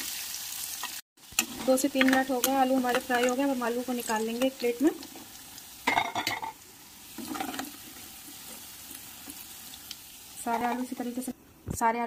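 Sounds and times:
hot oil sizzling: 0.0 - 11.6
spoon scraping a pan: 5.8 - 9.4, 10.4 - 11.2.

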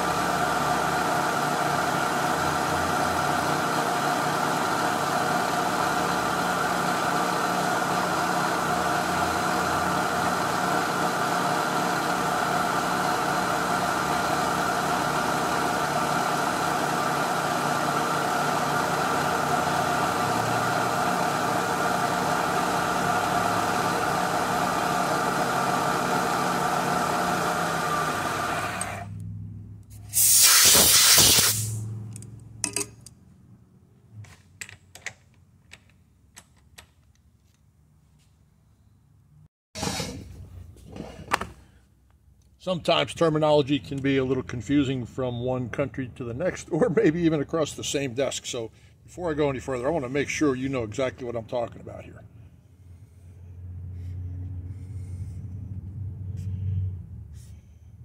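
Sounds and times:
milling machine whine: 0.0 - 29.1
compressed air hiss: 30.0 - 31.8.

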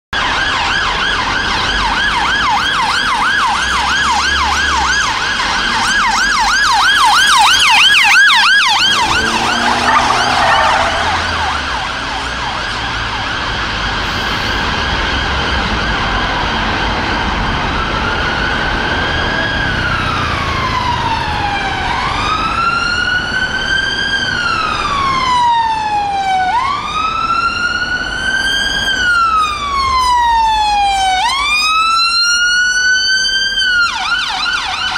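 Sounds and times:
siren wailing: 0.2 - 34.9
siren yelping: 0.2 - 34.9
steady siren tone: 0.2 - 34.9
second higher siren yelp: 6.0 - 13.2.

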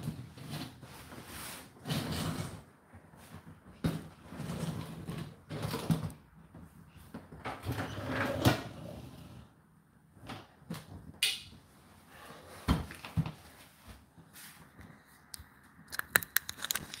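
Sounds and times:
dishwasher rack sliding on rails: 7.6 - 9.4.

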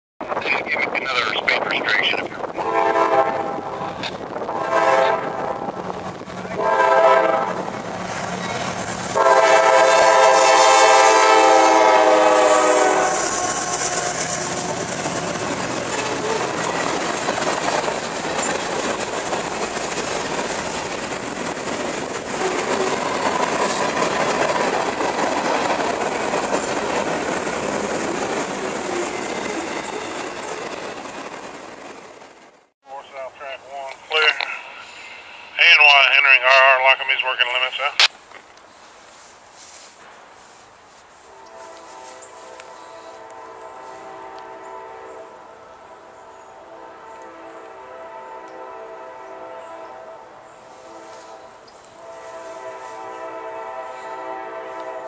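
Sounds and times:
train wheels on rails: 0.3 - 32.7
locomotive air horn blasts: 2.6 - 5.8, 6.5 - 7.7, 9.1 - 14.9, 41.3 - 45.7, 46.6 - 55.0.

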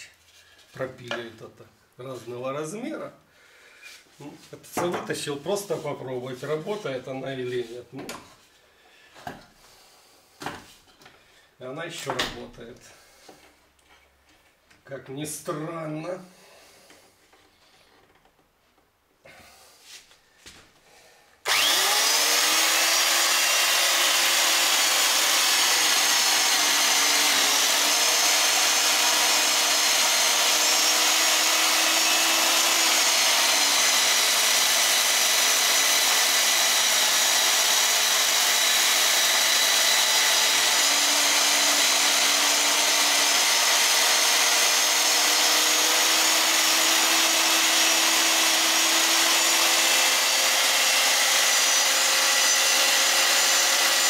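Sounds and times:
chain mortiser cutting wood: 21.4 - 54.0.

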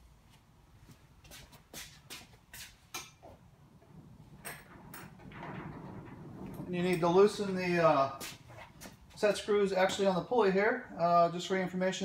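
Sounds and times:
footsteps: 0.3 - 3.4, 6.4 - 9.5.

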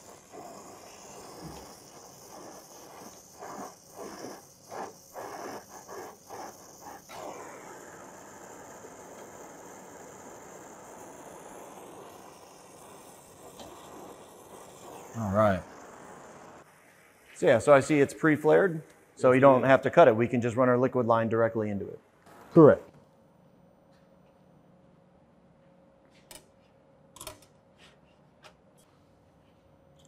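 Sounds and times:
torch flame hissing: 0.0 - 21.0, 22.2 - 22.9.

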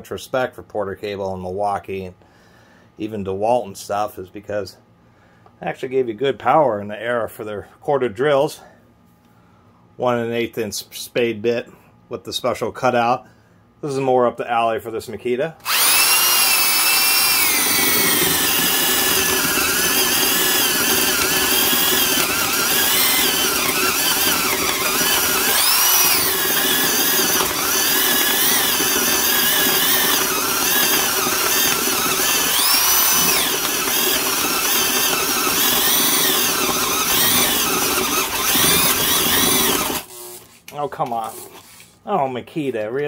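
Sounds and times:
drill boring into wood: 15.6 - 40.4, 41.2 - 41.6.

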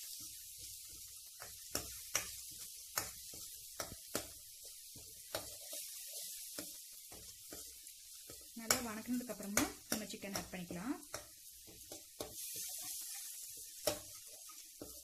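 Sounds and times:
masala sizzling in a pan: 0.0 - 15.0.

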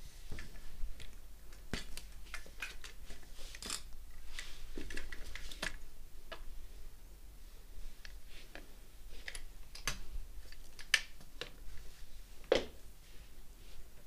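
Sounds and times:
folding bike frame clicks and rattles: 1.8 - 5.8.

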